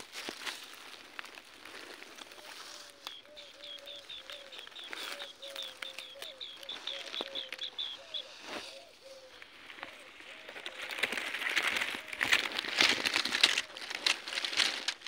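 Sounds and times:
lower curved bird calls: 1.3s - 15.0s
birds high repeated notes: 2.8s - 9.4s.

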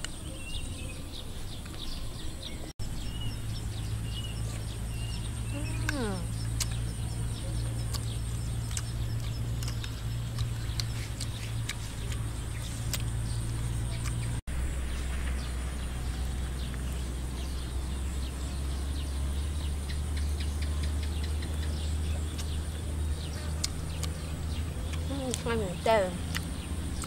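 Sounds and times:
low rumble: 2.8s - 27.0s
bird chirps and clicks: 4.2s - 14.4s, 19.6s - 27.0s.

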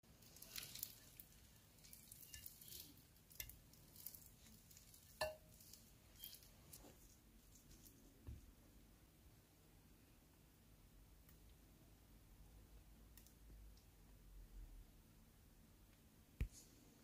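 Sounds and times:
spatula scraping and squishing: 0.1s - 8.0s.

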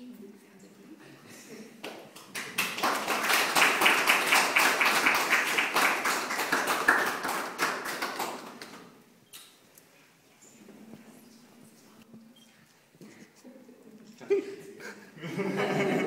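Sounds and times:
group applauding: 1.8s - 9.0s.

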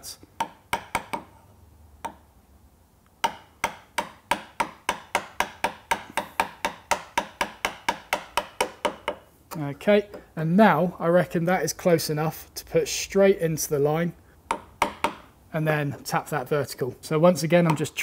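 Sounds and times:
chisel tapping: 0.2s - 1.4s, 2.0s - 2.3s, 3.2s - 10.3s, 14.5s - 15.3s, 17.6s - 18.0s.

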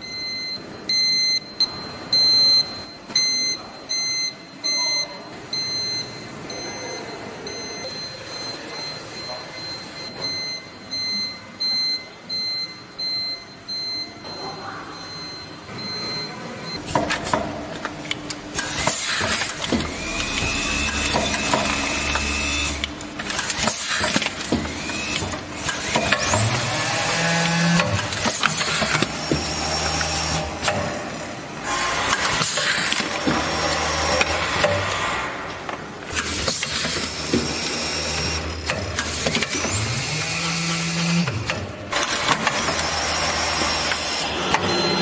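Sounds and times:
machine clicks and knocks: 16.8s - 31.0s, 32.0s - 44.8s
machine whine with pulses: 18.2s - 35.4s, 36.1s - 45.0s
low motor hum: 19.6s - 23.2s.

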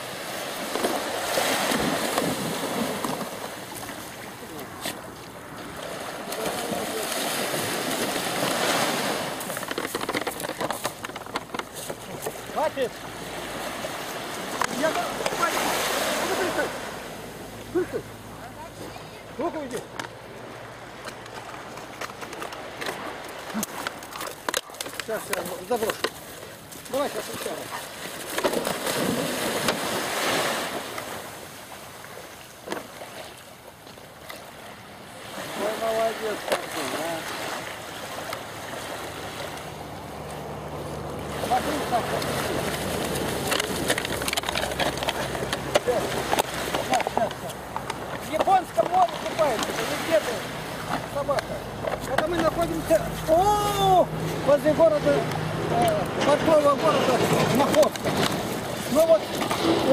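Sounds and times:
stormy sea surf: 0.0s - 11.6s, 12.5s - 18.2s, 28.7s - 32.4s
sea surf rushing: 0.0s - 21.0s, 21.6s - 33.7s, 34.3s - 59.9s
crackle of receding water: 28.0s - 52.0s.

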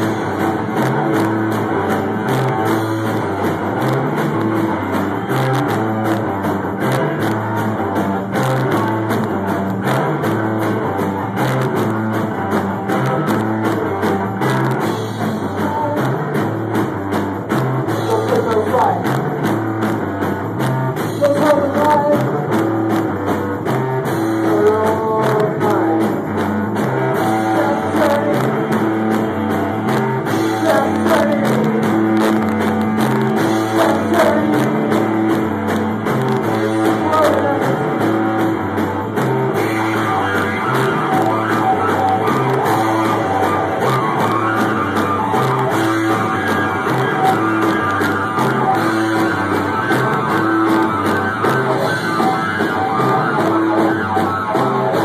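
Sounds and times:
live rock band playing: 0.0s - 55.0s
person singing: 14.9s - 16.6s, 21.1s - 22.7s, 24.4s - 26.4s, 27.1s - 29.0s, 30.3s - 32.4s, 33.3s - 35.5s, 36.2s - 38.5s.

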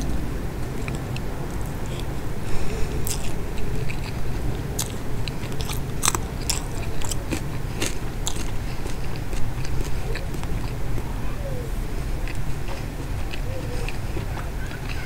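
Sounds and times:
person chewing food: 0.0s - 11.2s, 11.9s - 15.0s
crisp crunches: 2.7s - 10.8s.

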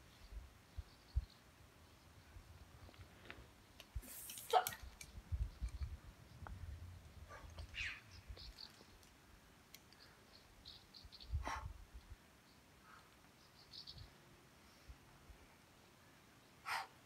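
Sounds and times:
low wind rumble on microphone: 4.8s - 8.7s, 11.1s - 12.2s.

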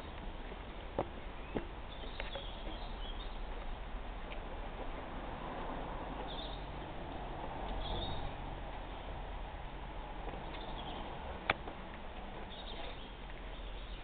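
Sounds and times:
small birds chirping: 0.0s - 4.7s, 6.1s - 6.9s, 7.6s - 9.2s, 10.2s - 14.0s.

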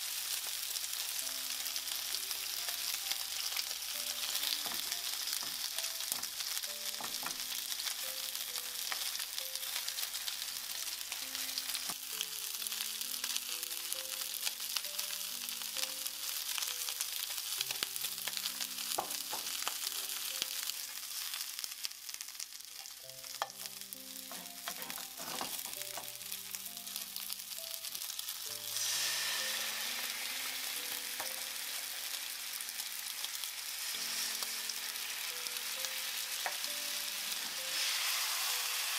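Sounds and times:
meat sizzling in a frying pan: 0.0s - 38.9s.

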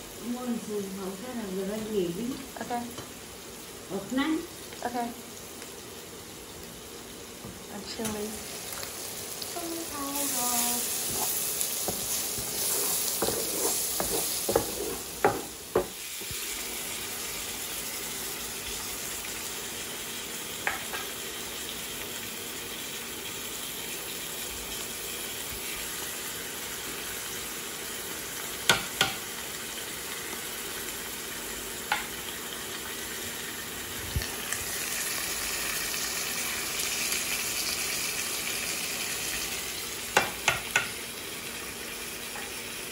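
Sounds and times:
food sizzling in oil: 0.0s - 42.9s.

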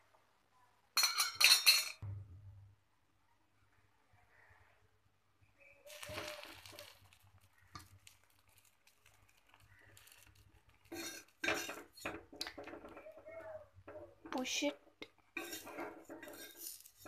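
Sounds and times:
spatula scraping iron griddle: 10.8s - 13.1s, 15.3s - 17.0s.

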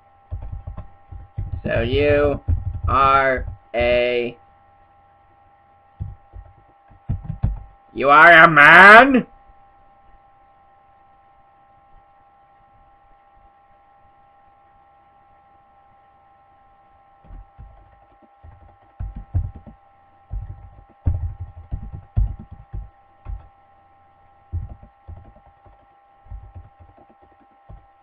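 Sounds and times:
electrical hum: 0.0s - 28.0s
keyboard typing: 0.3s - 4.3s, 6.0s - 7.7s, 17.2s - 23.6s, 24.5s - 28.0s.

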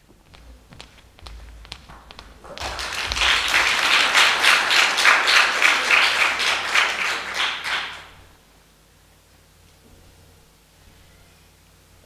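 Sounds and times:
audience applauding: 1.7s - 8.4s.

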